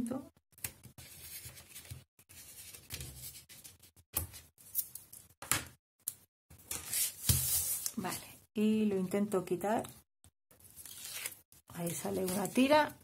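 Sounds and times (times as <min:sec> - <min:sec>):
paper rustling and rubbing: 0:00.9 - 0:03.9, 0:06.7 - 0:07.9, 0:10.7 - 0:12.9.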